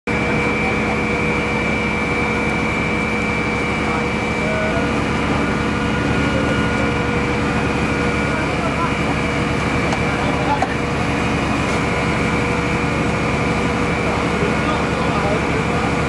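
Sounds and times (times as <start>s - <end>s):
steady machine drone: 0.1s - 16.0s.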